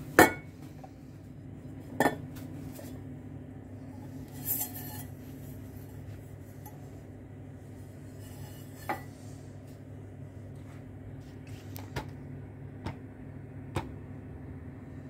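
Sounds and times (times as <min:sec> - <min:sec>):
steady low hum: 0:00.0 - 0:15.0
metal pot scraping ceramic plate: 0:04.0 - 0:06.1, 0:08.1 - 0:09.1.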